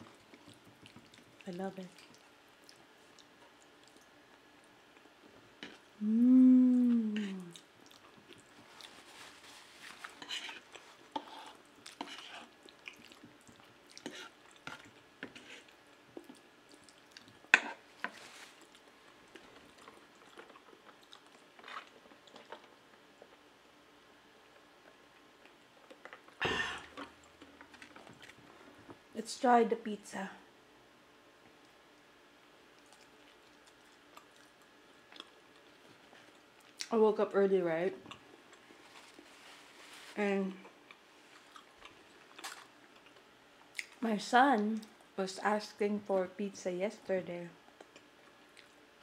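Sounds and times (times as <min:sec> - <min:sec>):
person chewing spaghetti: 0:00.0 - 0:23.5, 0:32.7 - 0:36.9, 0:40.6 - 0:44.0, 0:47.7 - 0:49.0
person humming mmm: 0:06.0 - 0:07.6.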